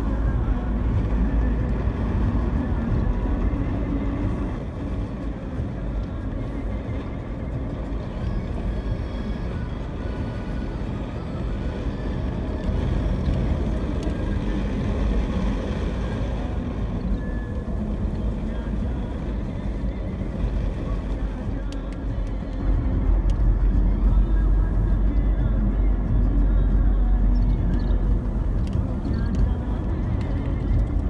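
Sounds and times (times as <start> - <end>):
car engine and tyre noise: 0.0 - 31.0.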